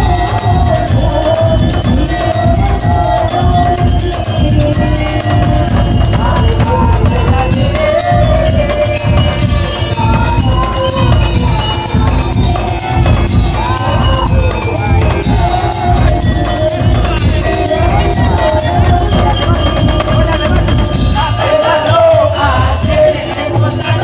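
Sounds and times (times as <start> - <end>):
fast drumming: 0.0 - 24.0
gliding melody line: 0.0 - 24.0
jingling percussion: 0.0 - 24.0.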